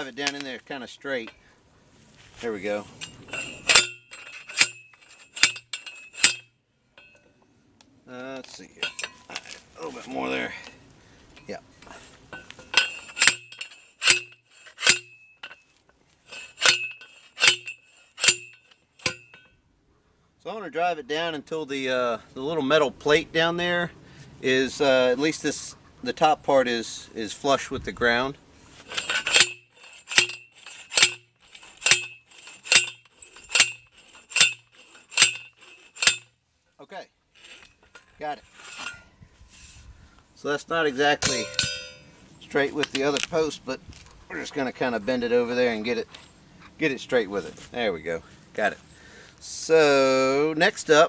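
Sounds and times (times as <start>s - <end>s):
post driver clanging on steel post: 3.0s - 7.3s, 8.4s - 9.6s, 12.3s - 15.7s, 16.3s - 19.6s, 28.9s - 36.4s, 37.4s - 39.0s, 41.2s - 42.1s.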